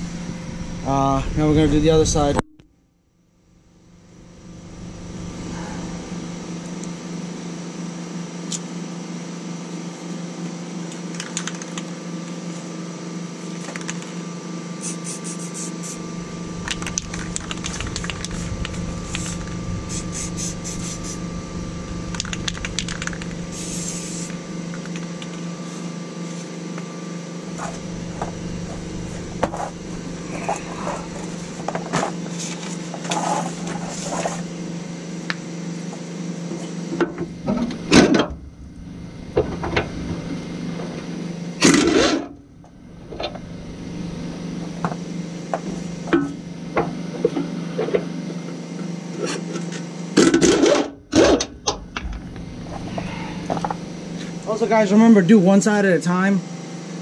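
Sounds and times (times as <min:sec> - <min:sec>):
steady hum: 0:00.0 - 0:57.0
air impact wrench bursts: 0:19.0 - 0:21.3, 0:23.2 - 0:24.4.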